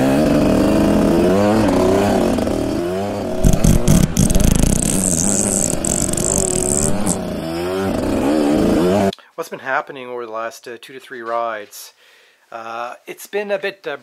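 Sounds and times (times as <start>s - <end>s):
dirt bike engine revving: 0.0s - 9.1s
sharp knocks: 3.3s - 4.9s.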